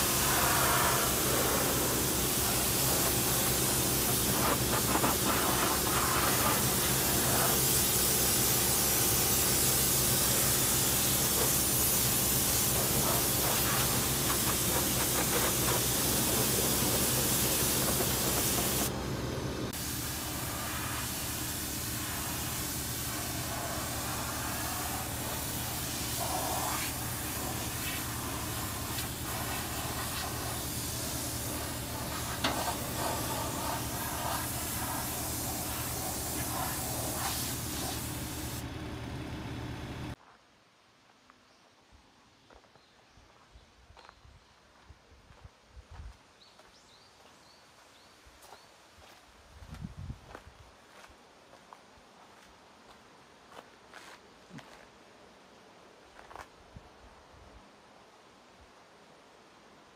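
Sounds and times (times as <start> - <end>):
pressure washer spray hissing: 0.0 - 38.8
pressure washer hum: 0.0 - 40.2.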